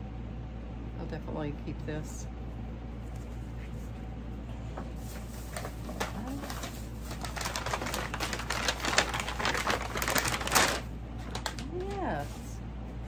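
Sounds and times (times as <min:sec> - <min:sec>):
air conditioner and fans humming: 0:00.0 - 0:13.0
shopping bags rustling and crinkling: 0:04.8 - 0:12.6.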